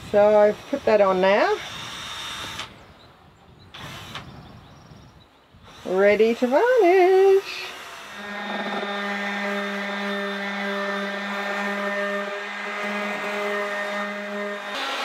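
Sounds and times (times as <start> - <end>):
orbital sander running: 5.7 - 15.0.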